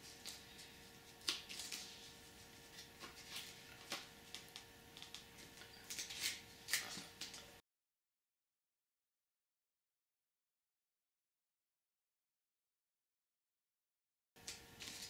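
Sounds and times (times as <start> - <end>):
faint steady hum: 0.0 - 7.6.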